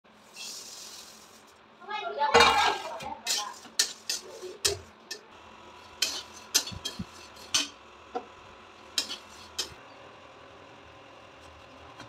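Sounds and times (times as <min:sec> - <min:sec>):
steel spatula scraping a pan: 0:00.2 - 0:01.5, 0:02.4 - 0:07.8, 0:08.9 - 0:09.8
rustle of dry rice flakes: 0:00.2 - 0:01.6.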